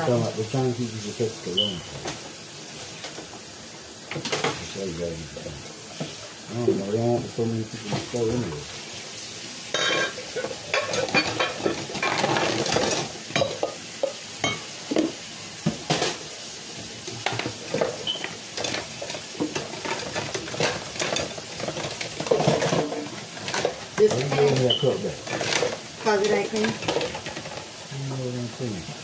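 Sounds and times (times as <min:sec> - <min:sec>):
scrubbing and rinsing: 0:00.0 - 0:29.0
dishes clinking: 0:04.1 - 0:04.7, 0:09.7 - 0:16.2, 0:17.2 - 0:27.6.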